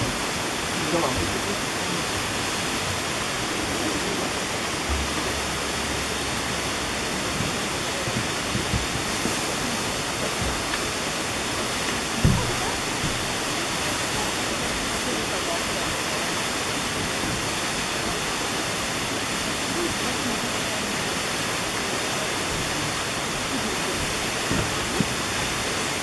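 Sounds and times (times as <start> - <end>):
water splashing at base: 0.0 - 26.0
waterfall rushing: 0.0 - 26.0
dull thump: 12.2 - 13.4.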